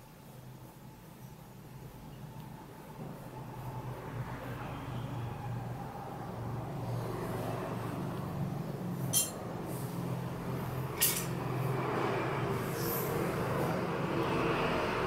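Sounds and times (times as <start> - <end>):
sharp clinks: 9.1 - 9.4, 11.0 - 11.4.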